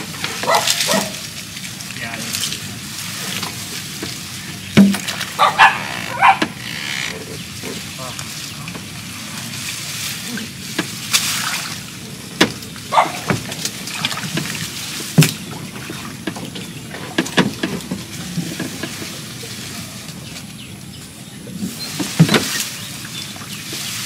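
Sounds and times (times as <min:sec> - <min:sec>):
water splashing: 0:00.0 - 0:24.0
sharp knocks against boat hull: 0:04.8 - 0:05.4, 0:12.4 - 0:13.6, 0:15.2 - 0:17.8.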